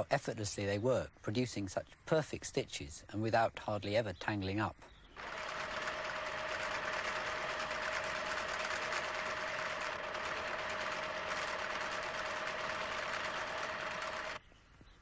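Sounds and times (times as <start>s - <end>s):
sewing machine motor whine: 5.2s - 14.4s.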